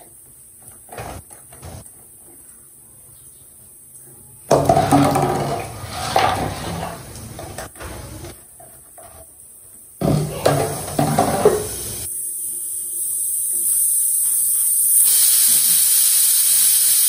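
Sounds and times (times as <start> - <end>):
pots and utensils clattering: 4.5 - 9.4, 10.0 - 12.1.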